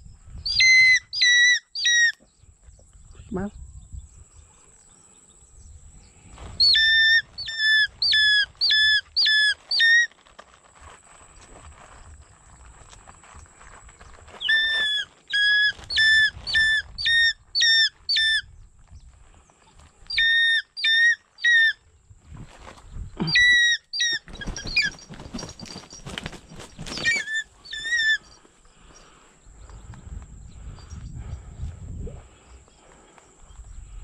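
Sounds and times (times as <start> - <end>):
hawk-eagle shrill calls: 0.5 - 2.2, 6.6 - 10.1, 14.4 - 18.5, 20.1 - 21.8, 23.2 - 25.2, 26.9 - 28.4
rustling: 7.8 - 17.0, 24.1 - 29.3.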